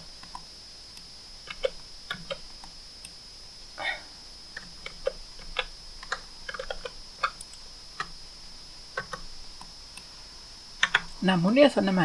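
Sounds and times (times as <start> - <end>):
faint high-pitched whine: 0.0 - 12.0
mouse and keyboard clicks: 1.5 - 2.4, 4.6 - 8.1, 9.0 - 10.1, 10.8 - 11.2.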